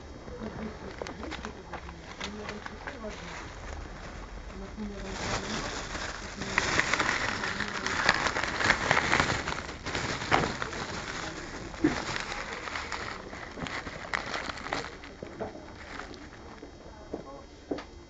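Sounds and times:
plastic bag rustling: 0.3s - 16.7s.

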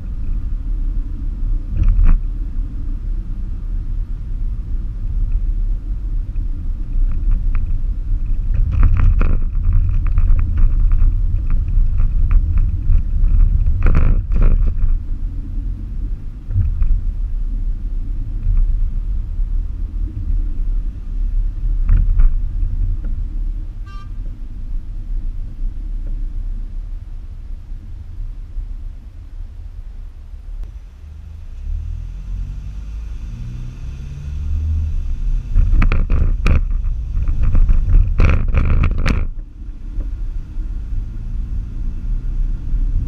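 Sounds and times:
car driving rumble: 0.0s - 43.0s
knocks and rattles: 35.6s - 39.4s.

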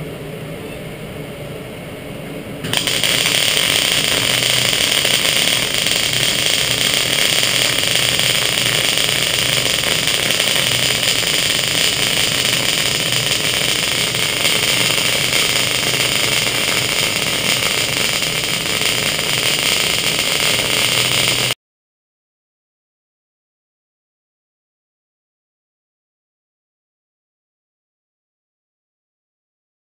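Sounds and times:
welding arc crackling and sizzling: 2.6s - 21.6s.

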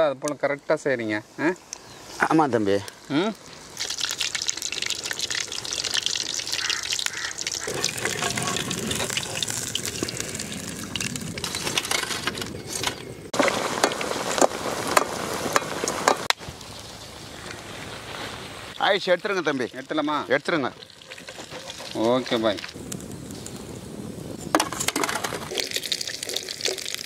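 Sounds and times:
chicken deep-frying in oil: 3.0s - 11.8s, 18.7s - 22.8s, 25.4s - 27.0s.

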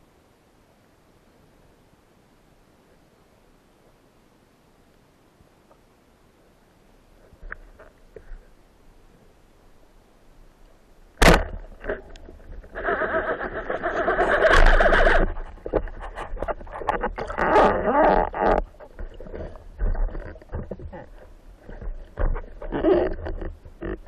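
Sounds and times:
speargun firing underwater: 11.2s - 12.3s
fish struggling gurgling: 11.2s - 24.0s.

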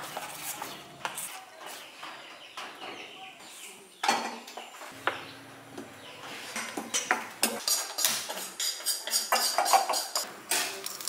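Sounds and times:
metal spoon scraping metal bowl: 6.4s - 10.3s.

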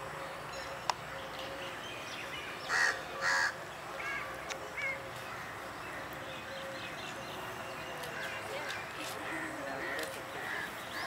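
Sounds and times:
crow cawing: 2.7s - 5.5s, 9.2s - 10.8s.

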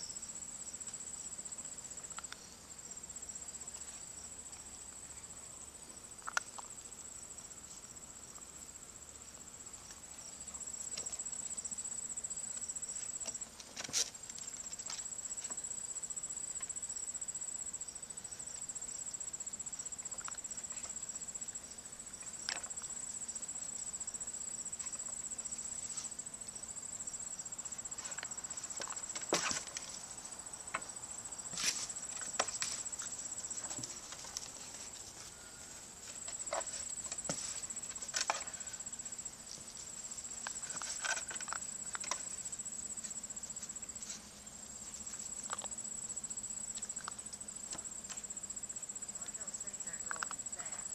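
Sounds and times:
crickets chirping: 0.0s - 50.9s
puppies scrambling over wood: 27.9s - 30.1s, 31.5s - 38.8s, 40.4s - 42.4s.

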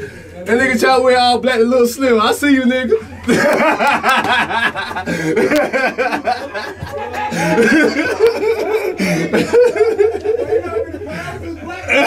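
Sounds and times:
men laughing: 3.1s - 12.0s.

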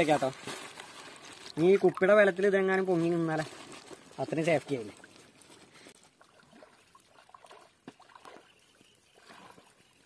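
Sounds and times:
water trickling and dripping: 6.0s - 10.0s.

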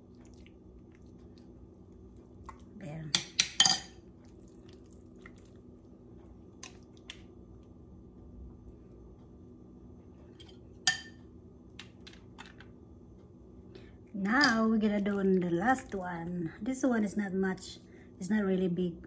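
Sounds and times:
steady low hum: 0.0s - 19.0s
metal spoon clinking on ceramic bowl: 3.1s - 4.0s, 10.9s - 11.2s.

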